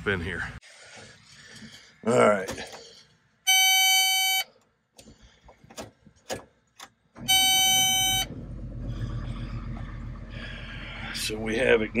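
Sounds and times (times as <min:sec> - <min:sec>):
warning buzzer beep: 0:03.5 - 0:04.5, 0:07.2 - 0:08.3
diesel engine cranking and idling: 0:06.7 - 0:12.0.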